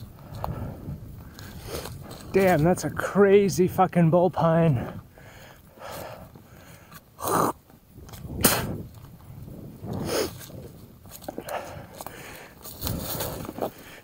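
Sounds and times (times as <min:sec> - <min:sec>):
bike clicks: 0:00.0 - 0:02.8.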